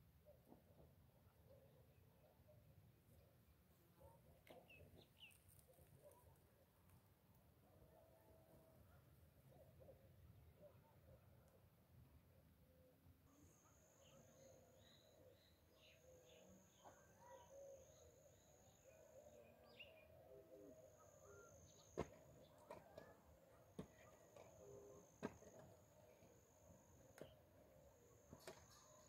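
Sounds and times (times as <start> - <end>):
small birds chirping: 4.4 - 6.2.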